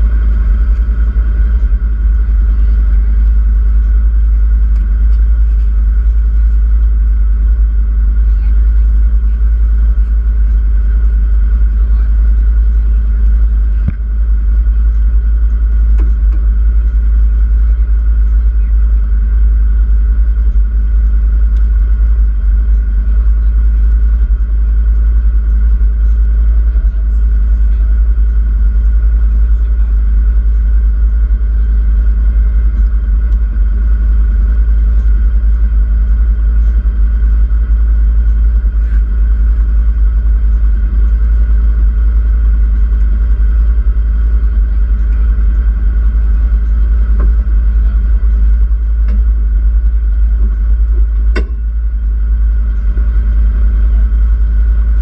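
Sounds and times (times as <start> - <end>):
utility vehicle engine running: 0.0 - 55.0.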